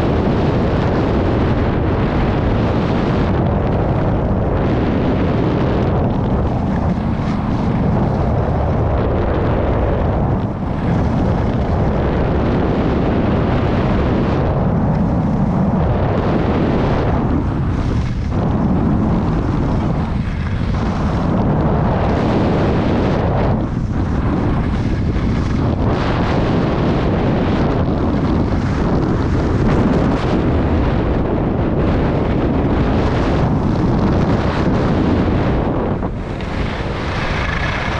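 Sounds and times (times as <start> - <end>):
wind buffeting microphone: 0.0 - 37.9
skis sliding on snow: 6.2 - 8.4, 17.2 - 26.2, 27.2 - 30.8, 32.7 - 37.9.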